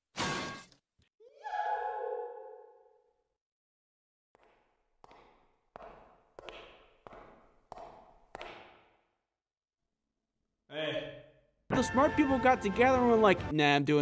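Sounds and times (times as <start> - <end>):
echoing footsteps: 4.4 - 9.0.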